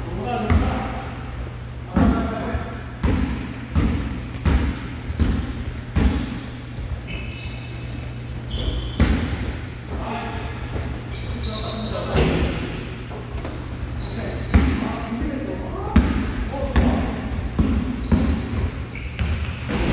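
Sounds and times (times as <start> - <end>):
basketball bouncing on hardwood floor: 3.0 - 6.4
sneaker squeaks: 3.0 - 19.9.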